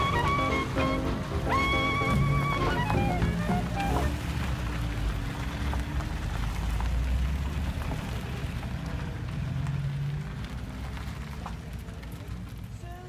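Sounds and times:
car engines running low: 0.0 - 13.0
tyres crackling over gravel: 2.8 - 13.0.

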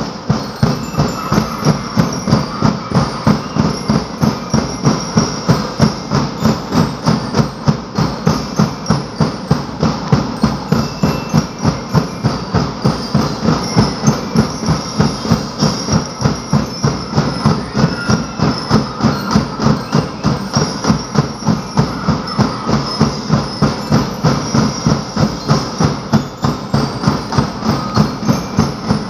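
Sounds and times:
drums beating a driving rhythm: 0.0 - 29.0.

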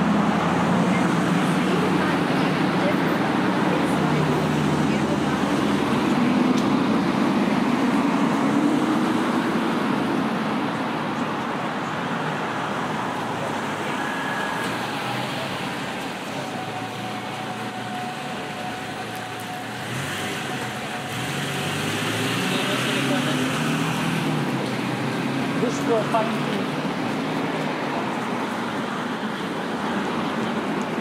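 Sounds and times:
vehicle passing by: 13.4 - 31.0.

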